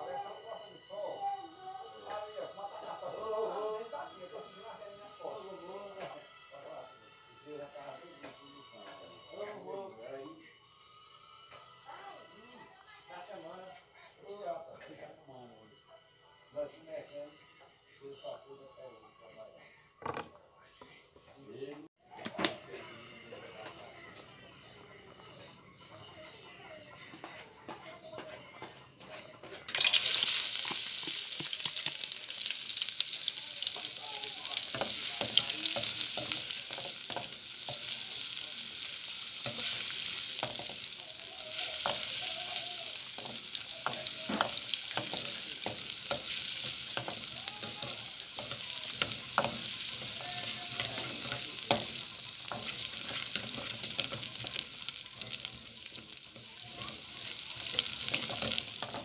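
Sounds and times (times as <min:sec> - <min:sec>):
onion sizzling in hot oil: 0:29.7 - 0:59.0.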